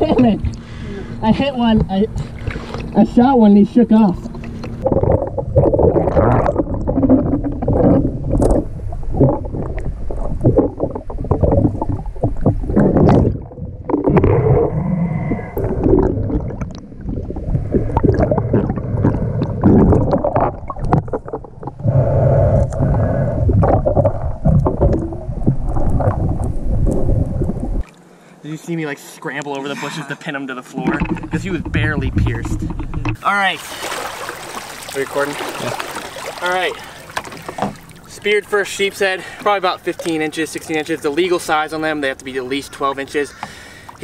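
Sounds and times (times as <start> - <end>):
water splashes: 0.0 - 21.8, 30.8 - 44.0
muffled water sloshing and gurgling: 0.0 - 27.9, 30.8 - 44.0.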